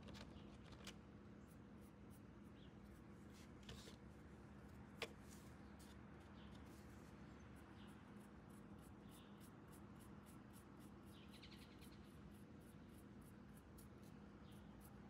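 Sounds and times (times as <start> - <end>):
faint chirp: 11.0 - 13.0.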